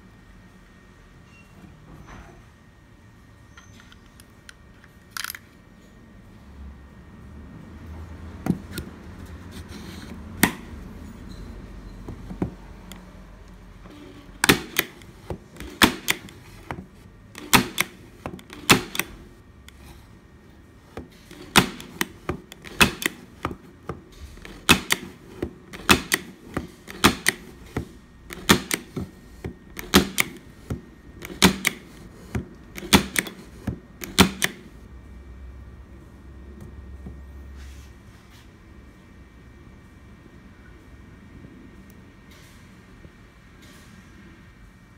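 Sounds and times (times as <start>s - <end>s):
point driver firing into wood: 17.4s - 19.2s.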